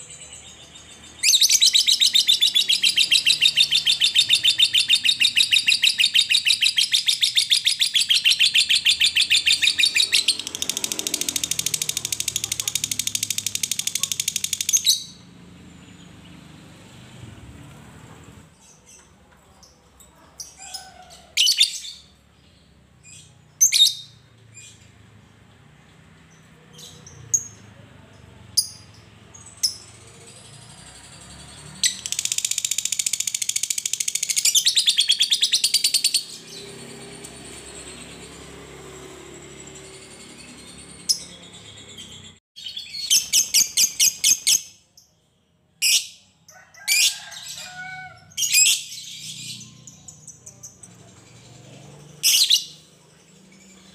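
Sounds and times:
bird chirping: 0.0 - 46.6, 47.2 - 53.9
bird chattering trill: 0.7 - 15.2.

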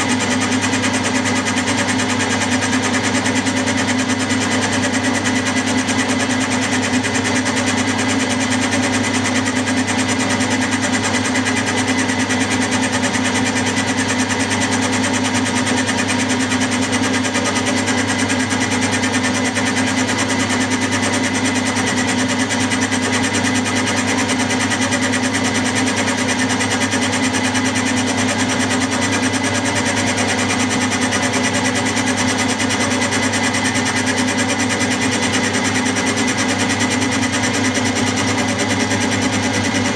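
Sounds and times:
milling machine whine: 0.0 - 39.9
metal cutting noise: 15.9 - 39.9.

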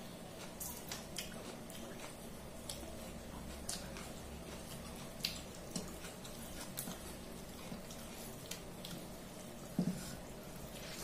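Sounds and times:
faint low hum: 0.0 - 11.0
chewing mouth smacks: 0.4 - 9.1.

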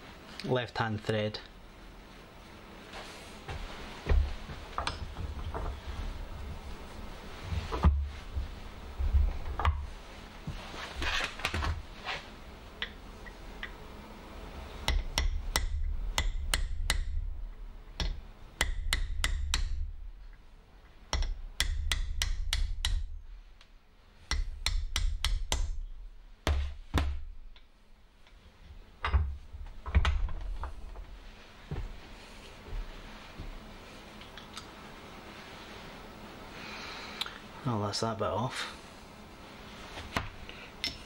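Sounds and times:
sharp metallic clicks and knocks: 14.8 - 17.2, 17.9 - 19.8, 21.1 - 23.1.

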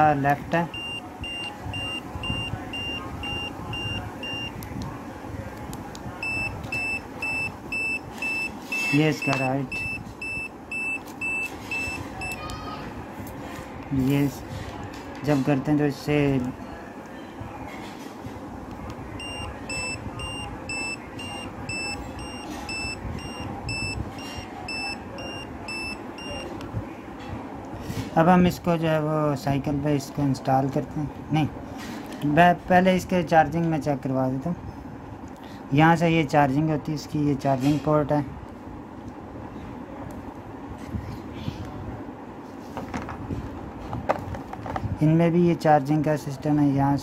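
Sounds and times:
short high-pitched beeps: 0.7 - 4.6, 6.2 - 12.4, 19.2 - 26.5.

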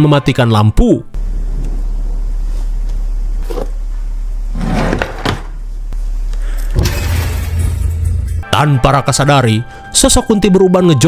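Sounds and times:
low horror drone: 6.5 - 9.9
deep rumble: 6.7 - 8.9.

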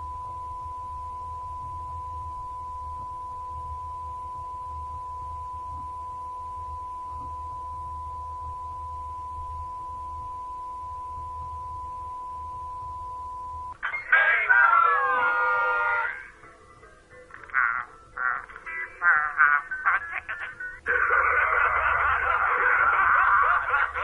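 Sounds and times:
fainter lower tone: 0.0 - 17.2
excited cartoon voices: 14.0 - 16.3.

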